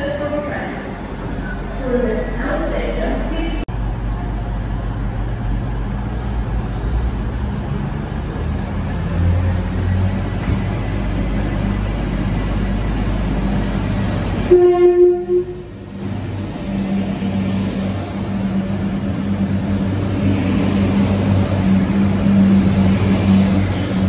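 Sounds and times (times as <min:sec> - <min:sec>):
train diesel engine droning: 0:00.0 - 0:24.0
train horn blast: 0:14.4 - 0:15.7.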